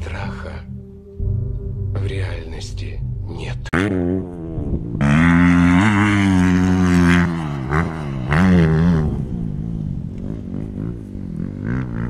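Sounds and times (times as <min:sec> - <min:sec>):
dirt bike engine revving: 0:03.8 - 0:12.0.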